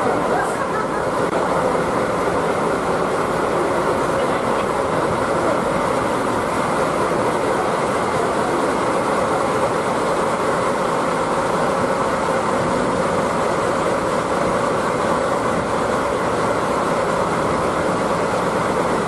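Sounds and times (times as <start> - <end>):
train rumbling: 0.0 - 19.0.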